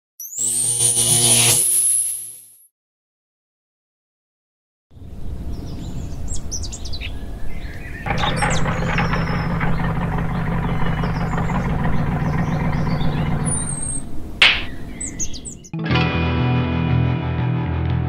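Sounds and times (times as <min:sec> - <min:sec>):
birds chirping: 0:05.0 - 0:15.8
pickup truck engine running: 0:08.1 - 0:15.4.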